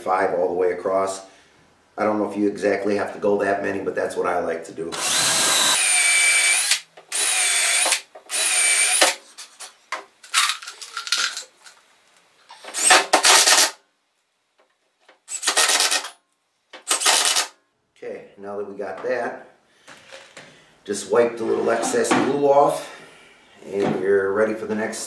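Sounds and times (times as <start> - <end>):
power drill driving screws: 5.0 - 9.2, 12.7 - 13.8, 15.3 - 16.2, 16.9 - 17.5.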